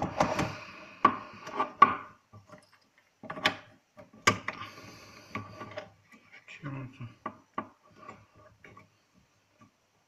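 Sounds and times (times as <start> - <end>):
plastic clicks and knocks: 0.0 - 4.6
plastic rubbing and scraping: 0.0 - 6.5, 7.6 - 9.8.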